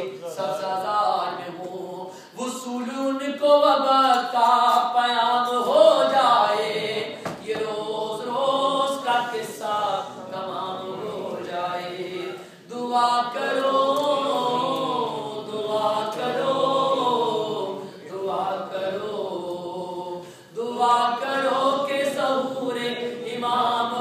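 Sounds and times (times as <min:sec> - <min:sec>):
men chanting unaccompanied: 0:05.2 - 0:24.0.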